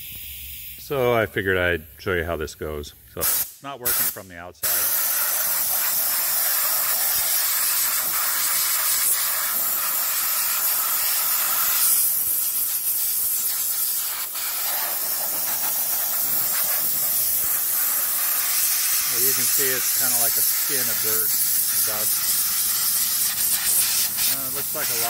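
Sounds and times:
compressed air blow gun hissing: 0.0 - 1.1, 3.2 - 25.0.

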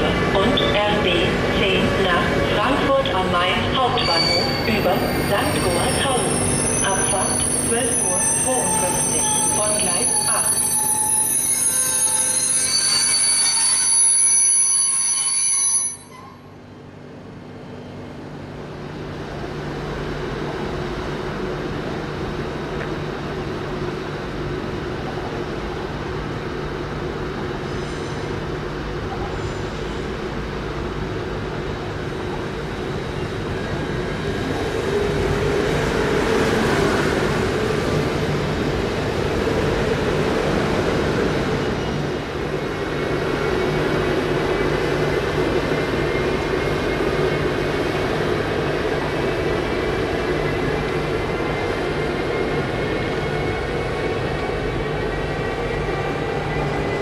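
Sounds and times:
train rumbling: 0.0 - 14.2, 16.5 - 57.0
shrill brake squeal: 3.9 - 16.5, 27.7 - 28.3, 29.3 - 30.0.

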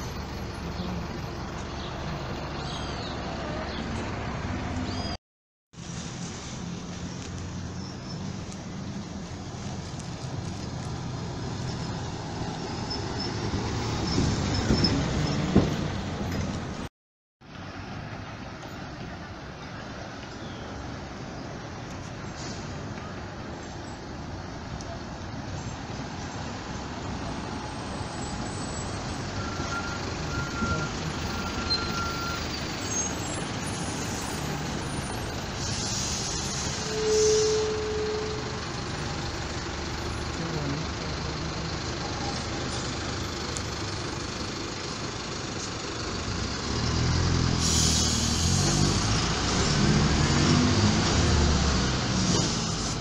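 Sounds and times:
bus engines passing: 0.0 - 5.2, 5.8 - 53.0
air brakes hissing: 22.3 - 22.9, 31.6 - 38.2, 47.5 - 49.0.

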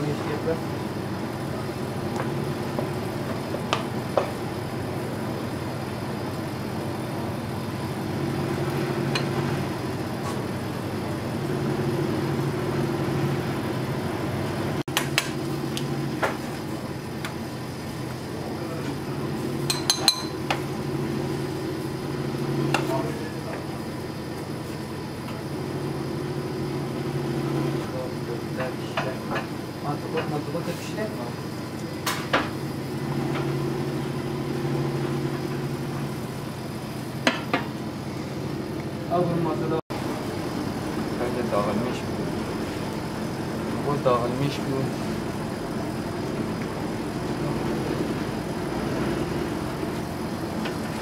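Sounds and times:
low kitchen hum: 0.0 - 51.0
dishes and utensils clinking: 19.7 - 20.5.

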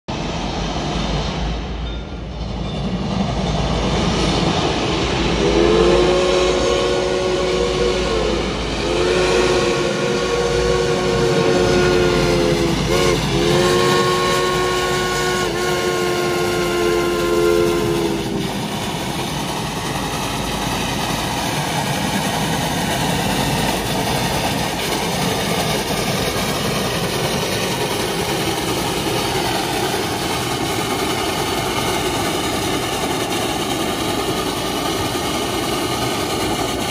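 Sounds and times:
moving train rushing noise: 0.1 - 36.9
steam whistle chord: 5.3 - 18.4.

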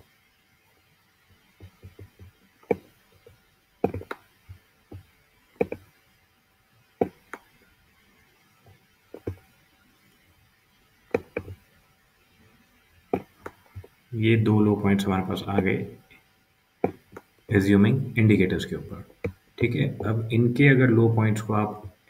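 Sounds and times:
computer mouse clicking: 5.6 - 5.9.

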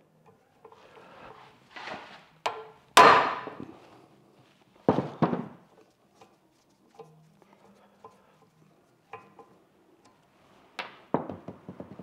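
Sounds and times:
hammer striking metal: 3.0 - 3.6.

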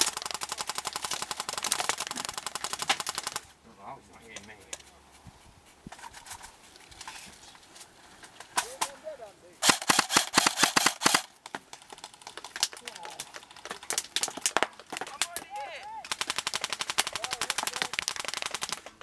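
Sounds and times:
airsoft rifles firing: 0.0 - 3.5, 9.6 - 19.0.

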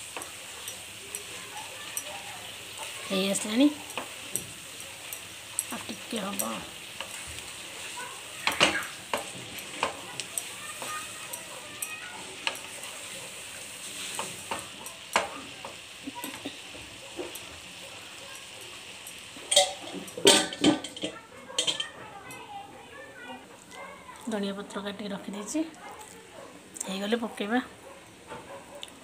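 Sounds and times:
cabbage sizzling in a pan: 0.0 - 29.0
spatula scraping a pan: 5.7 - 15.3.

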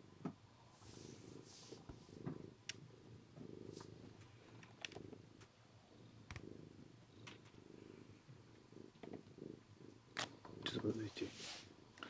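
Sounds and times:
cat purring: 0.0 - 12.0
faint clicks: 2.2 - 2.8, 6.2 - 6.5.

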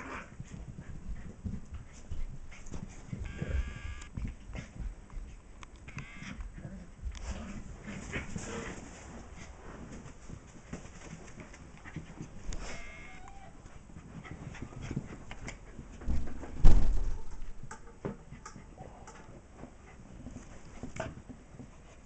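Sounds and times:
dogs scuffling on rug: 0.0 - 5.6, 6.4 - 16.4, 19.4 - 22.0
heavy thumps: 2.8 - 5.0, 15.9 - 18.2
dog whimper: 12.7 - 13.6.

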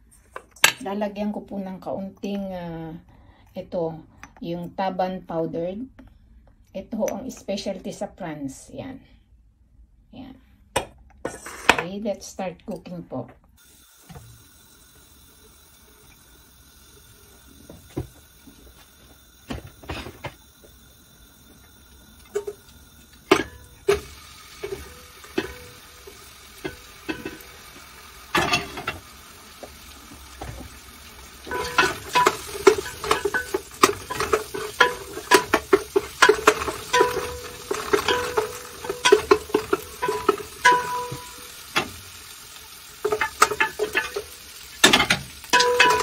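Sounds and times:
wooden spoon stirring in metal pot: 31.4 - 42.0, 43.0 - 46.0.

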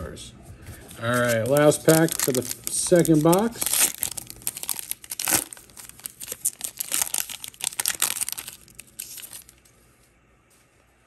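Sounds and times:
foil pack crinkling and tearing: 1.0 - 9.7.

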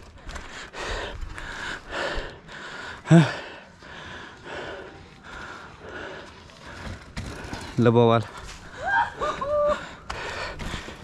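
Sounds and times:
person breathing hard: 0.4 - 7.6, 9.7 - 11.0.

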